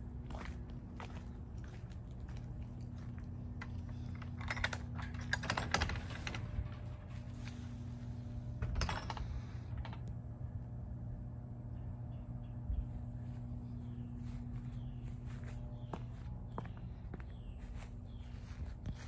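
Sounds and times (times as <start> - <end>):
footsteps walking: 0.0 - 4.0, 6.4 - 8.1, 12.8 - 19.0
steady low hum: 0.0 - 19.0.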